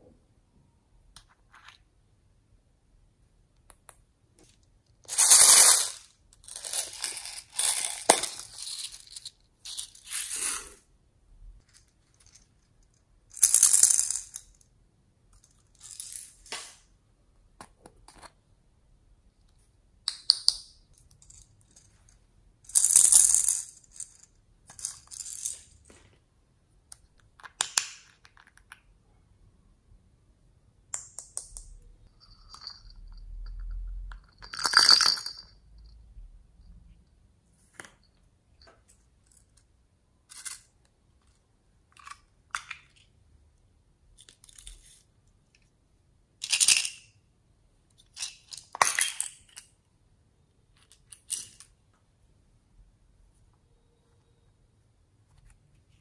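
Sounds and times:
glitter rattling in plastic cups: 5.1 - 10.8.

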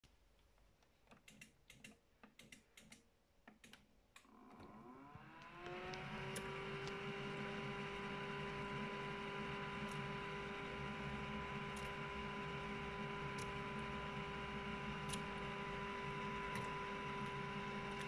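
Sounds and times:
washing machine motor whine: 4.3 - 18.0.

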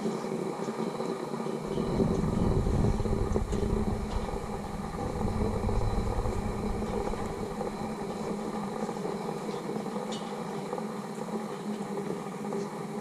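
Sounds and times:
wind buffeting microphone: 1.6 - 8.9.

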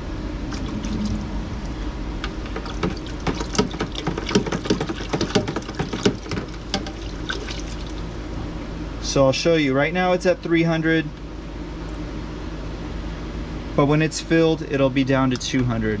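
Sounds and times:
water splashing into plastic bucket: 2.5 - 8.0.

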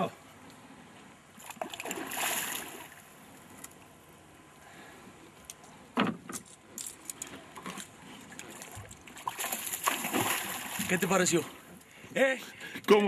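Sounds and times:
fishing tackle and boat knocks: 5.9 - 8.0
fish splashing at surface: 8.6 - 11.0.

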